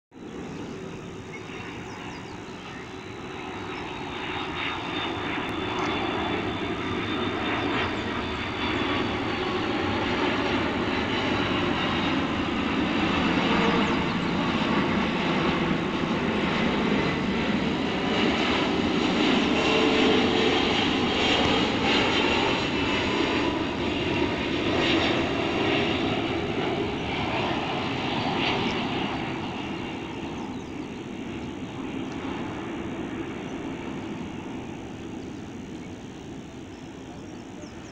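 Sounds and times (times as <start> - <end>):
jet airliner rumble: 0.1 - 37.9.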